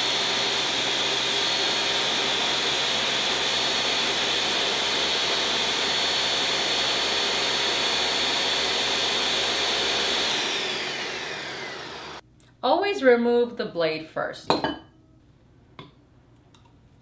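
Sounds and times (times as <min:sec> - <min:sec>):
blender motor whining: 0:00.0 - 0:12.2.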